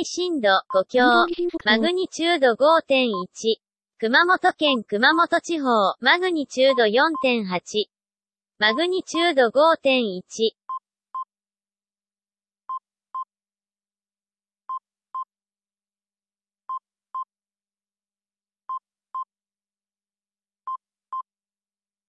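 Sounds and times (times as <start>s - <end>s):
electronic double beeps: 1.0s - 1.9s.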